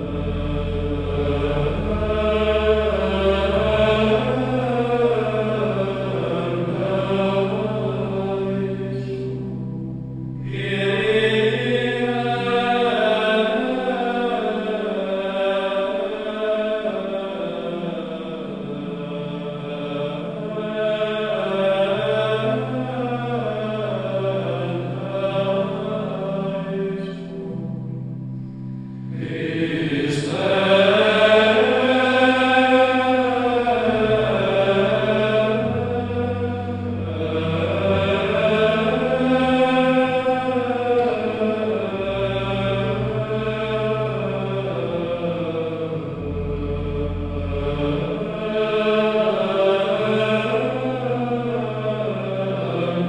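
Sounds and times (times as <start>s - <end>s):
low sustained tones: 0.0s - 15.4s
voices singing slow chant: 0.0s - 53.0s.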